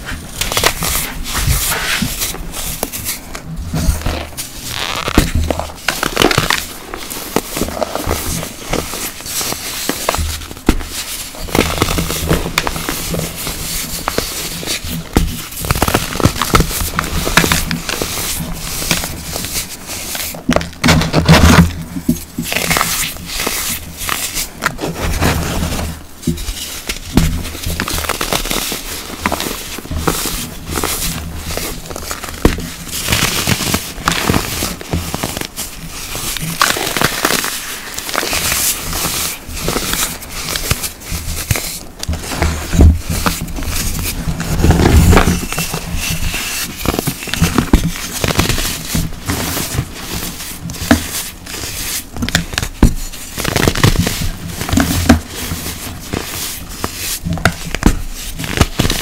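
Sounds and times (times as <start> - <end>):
powdery blocks crunching: 26.4 - 59.0.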